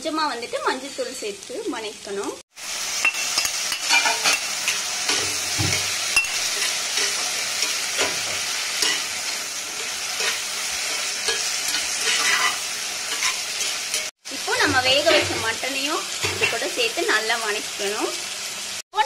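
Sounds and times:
food sizzling in oil: 0:00.0 - 0:19.0
spatula scraping and knocking pan: 0:03.0 - 0:15.6.

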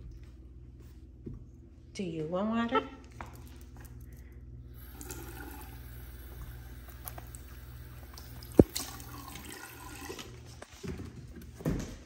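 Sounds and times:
faucet running into sink: 0:04.8 - 0:10.4.

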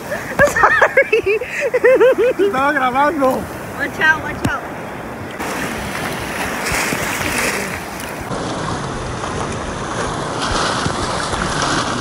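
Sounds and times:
ocean surf breaking: 0:00.0 - 0:12.0
wind on microphone: 0:03.3 - 0:12.0.

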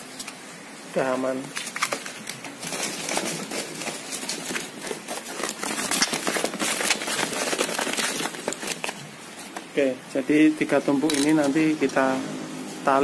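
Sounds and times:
plastic sheeting crinkling: 0:00.0 - 0:12.8
plastic baskets clicking: 0:01.4 - 0:09.8.

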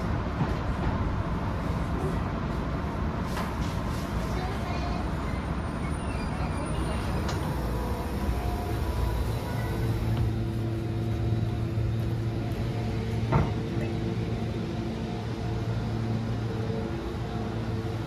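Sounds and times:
train engine idling: 0:04.2 - 0:18.0.

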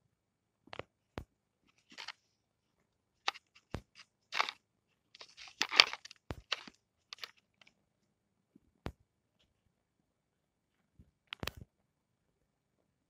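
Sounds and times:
crunchy rustles: 0:01.7 - 0:02.3, 0:03.2 - 0:07.7
plastic toy clicks and knocks: 0:03.3 - 0:04.6, 0:05.2 - 0:07.4.

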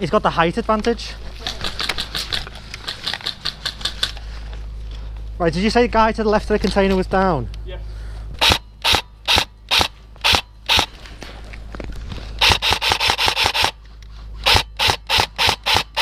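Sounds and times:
airsoft rifle shots: 0:08.4 - 0:11.0, 0:12.4 - 0:13.8, 0:14.4 - 0:16.0.

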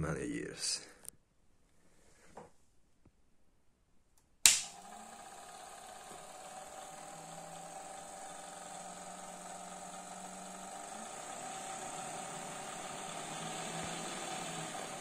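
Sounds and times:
hair dryer motor whirring: 0:04.5 - 0:15.0.

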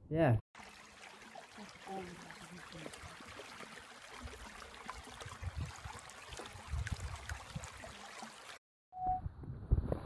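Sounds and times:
creek water running: 0:00.6 - 0:08.6.

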